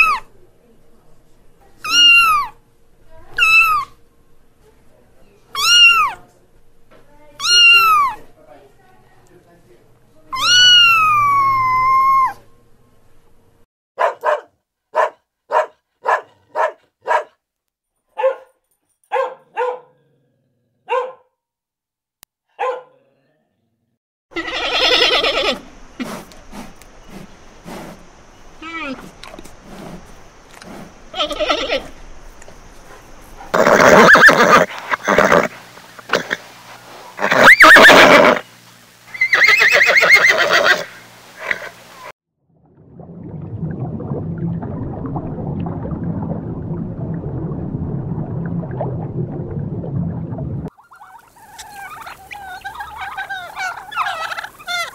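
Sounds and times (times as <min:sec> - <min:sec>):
dog barking: 0:14.0 - 0:17.4, 0:18.1 - 0:20.1, 0:20.8 - 0:21.4, 0:22.5 - 0:23.1
horse whinnying: 0:24.4 - 0:25.6, 0:31.1 - 0:31.9, 0:33.5 - 0:35.5, 0:37.2 - 0:38.4, 0:39.1 - 0:41.8.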